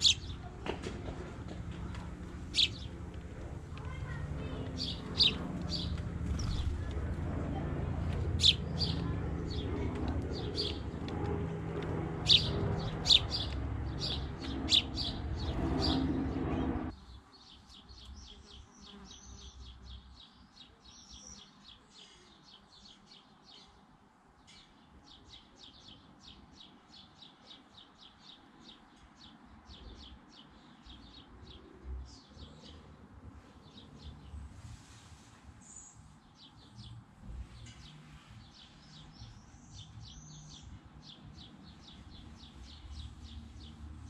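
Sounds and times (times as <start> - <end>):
low background rumble: 0.0 - 17.0
sparrows chirping: 0.0 - 44.0.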